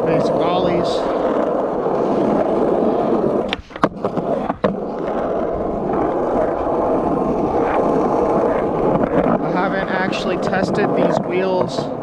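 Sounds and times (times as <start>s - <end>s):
skateboard clacking on ground: 0.0s - 12.0s
skateboard wheels rolling on asphalt: 0.0s - 12.0s.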